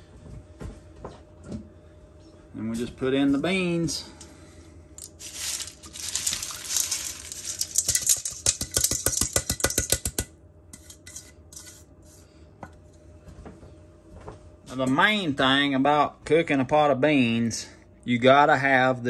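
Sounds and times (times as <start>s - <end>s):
beans sliding and splashing: 5.0s - 8.6s
colander clicks and rattles: 5.0s - 10.3s.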